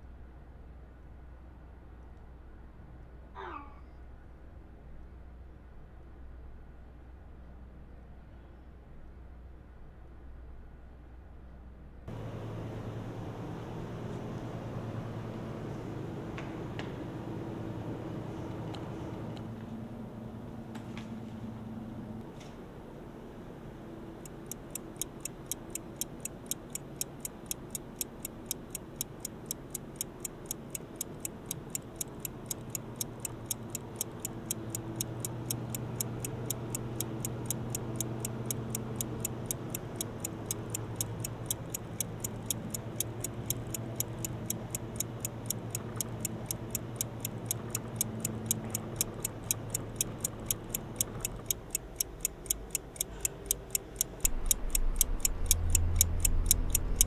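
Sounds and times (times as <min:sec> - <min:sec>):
fast clock ticking: 0:24.1 - 0:57.0.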